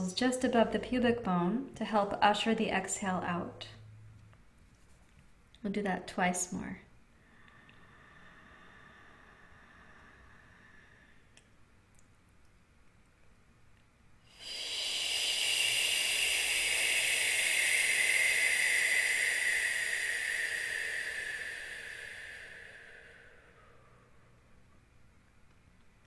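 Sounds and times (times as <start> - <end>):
person exhaling through pursed lips: 7.2 - 11.6, 14.3 - 24.7.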